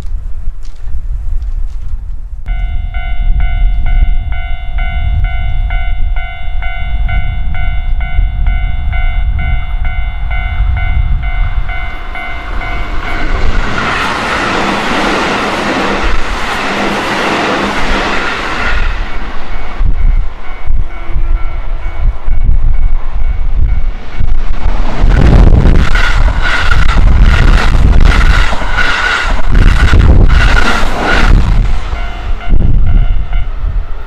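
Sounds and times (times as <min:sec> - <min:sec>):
level crossing warning bell: 0:02.5 - 0:14.0, 0:19.1 - 0:24.4, 0:31.9 - 0:33.7
electric train passing: 0:02.5 - 0:34.0.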